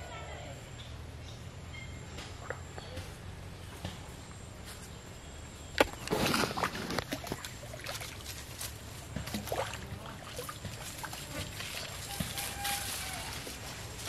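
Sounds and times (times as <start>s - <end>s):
fish splashing in water: 5.8s - 14.0s.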